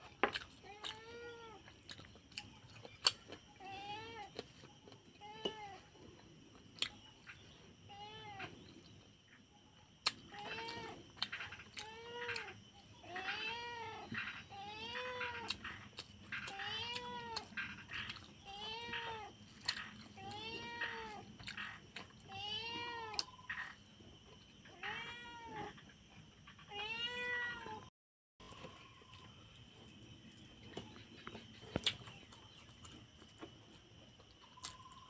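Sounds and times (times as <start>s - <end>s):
cat meowing: 24.7s - 25.7s, 26.7s - 27.8s.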